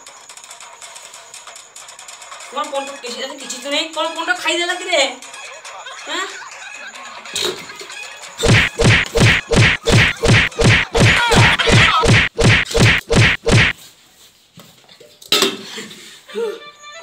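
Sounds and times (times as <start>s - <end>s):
comedy beating whacks: 8.4s - 13.8s
sharp thump: 8.4s - 13.8s.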